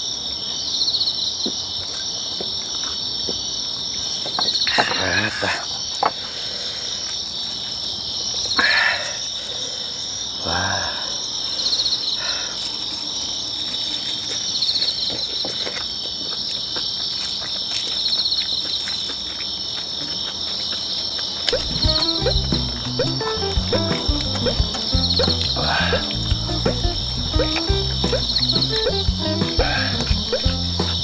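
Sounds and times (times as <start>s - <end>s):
crickets chirping: 0.0s - 31.0s
eating noise: 11.5s - 31.0s
insect pulsed trill: 21.5s - 31.0s.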